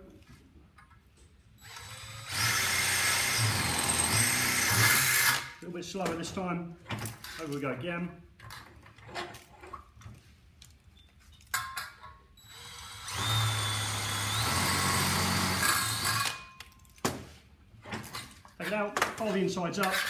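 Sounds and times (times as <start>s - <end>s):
cordless drill drilling through steel: 1.6s - 5.6s, 12.4s - 16.4s.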